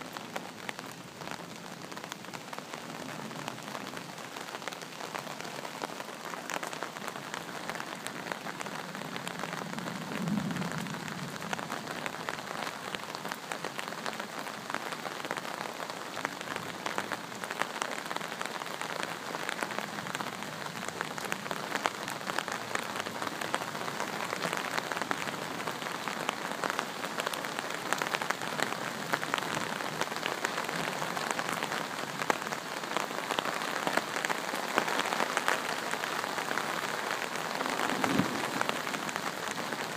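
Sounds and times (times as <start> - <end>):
heavy rain on leaves: 0.0 - 39.9
low rumble of thunder: 9.6 - 12.0, 37.6 - 39.7.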